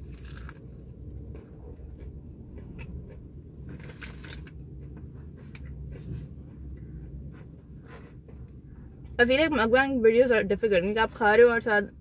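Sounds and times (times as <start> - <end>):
chewing food: 0.0 - 5.0
steady low hum: 0.0 - 12.0.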